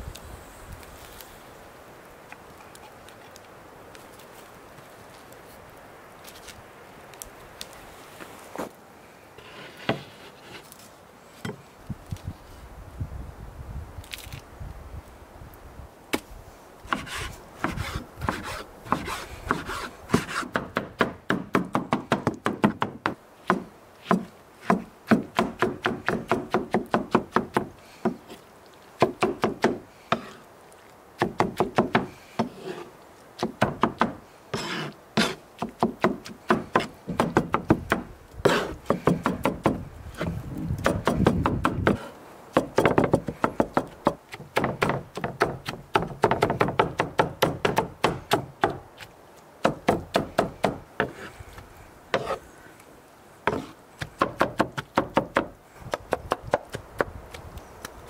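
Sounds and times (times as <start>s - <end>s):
knife chopping on wooden board: 53.5s - 57.1s.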